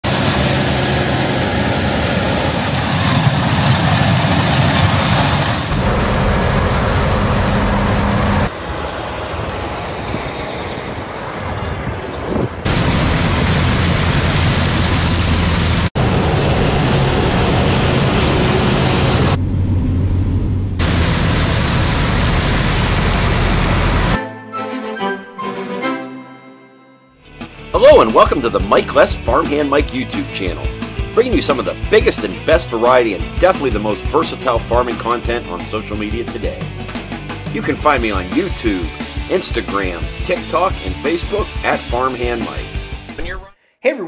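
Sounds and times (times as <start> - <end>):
harvest machine engines droning: 0.1 - 24.1.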